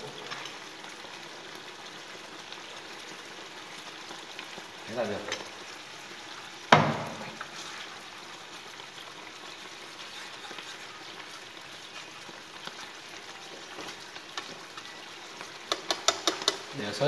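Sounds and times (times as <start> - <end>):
sauce bubbling in a frying pan: 0.0 - 17.0
wooden utensil stirring: 7.0 - 8.0, 9.3 - 14.9, 15.6 - 16.8.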